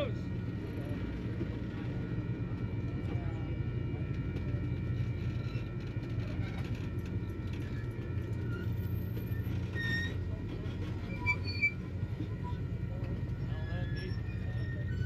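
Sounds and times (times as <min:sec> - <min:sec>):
train wheels rumbling: 0:00.0 - 0:15.0.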